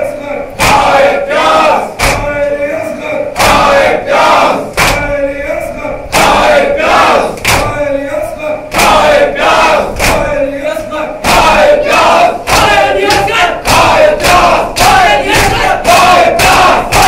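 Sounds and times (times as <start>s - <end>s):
group chanting a lament: 0.0s - 17.0s
hands slapping chests: 0.6s - 1.0s, 2.0s - 2.3s, 4.7s - 5.1s, 7.3s - 7.8s, 8.7s - 9.1s, 9.9s - 10.3s, 11.2s - 17.0s.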